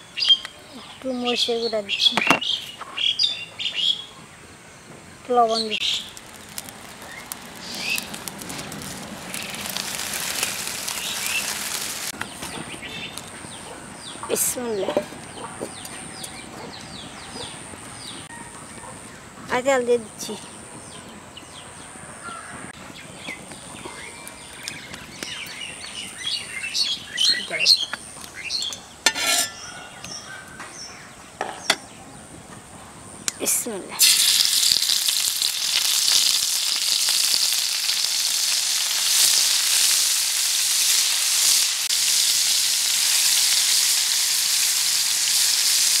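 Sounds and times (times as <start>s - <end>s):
birds chirping and singing: 0.0s - 6.2s, 10.9s - 19.6s, 20.2s - 33.3s
dry leaves crackling in fire: 5.2s - 18.8s, 22.3s - 29.0s, 33.0s - 46.0s.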